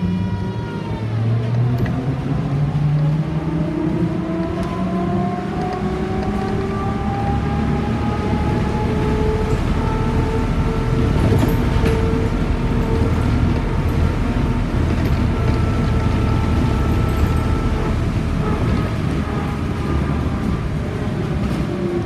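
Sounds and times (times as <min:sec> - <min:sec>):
tyres rumbling on road: 0:00.0 - 0:22.0.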